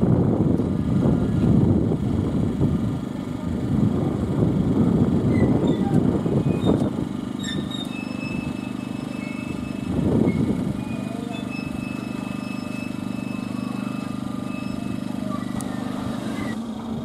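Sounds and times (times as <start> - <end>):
wind buffeting microphone: 0.0 - 8.8, 9.5 - 11.8
low mechanical hum: 0.0 - 17.0.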